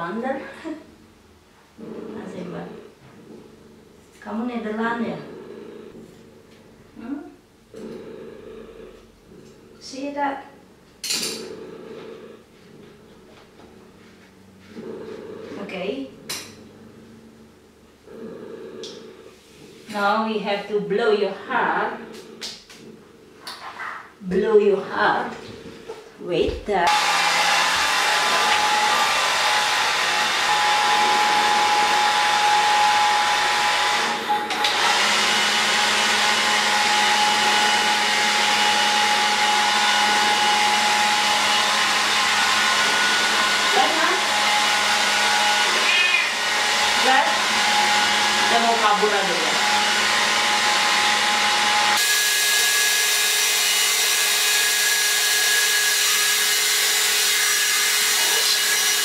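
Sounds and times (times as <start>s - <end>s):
hair dryer blowing: 26.8s - 59.0s.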